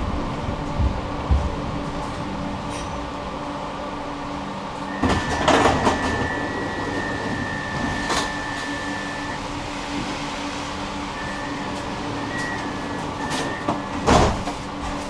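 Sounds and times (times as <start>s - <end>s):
tram drive hum: 0.0s - 15.0s
steady high tone: 4.8s - 14.8s.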